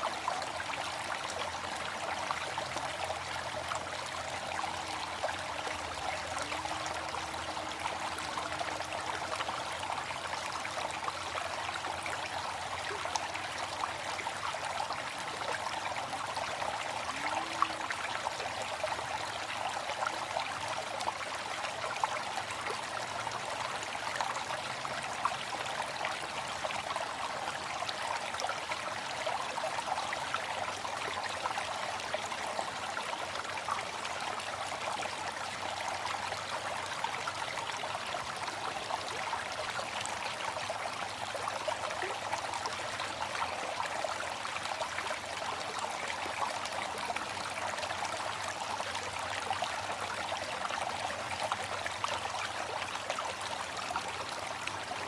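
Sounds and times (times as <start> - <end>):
flowing water: 0.0 - 55.0.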